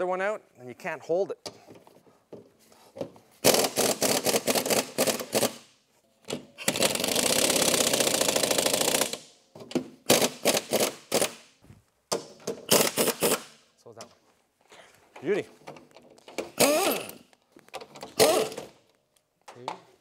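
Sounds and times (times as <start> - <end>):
pneumatic impact wrench hammering: 3.4 - 5.7, 6.3 - 11.5, 12.1 - 13.6, 16.3 - 17.3, 18.0 - 18.8.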